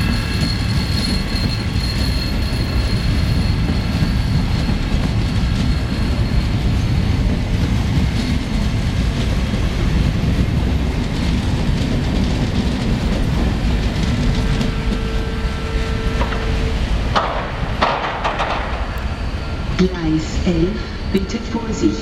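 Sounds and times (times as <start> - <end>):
train coaches rolling past: 0.0 - 22.0
wheels clicking over rail joints: 10.0 - 19.2.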